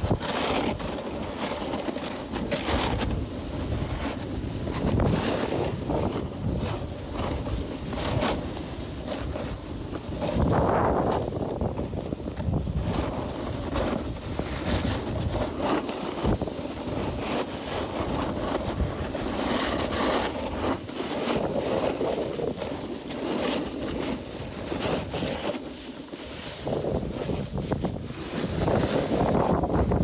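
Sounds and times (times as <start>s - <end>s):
snowboard edges carving snow: 0.0s - 30.0s
wind on microphone: 2.5s - 22.8s, 26.2s - 30.0s.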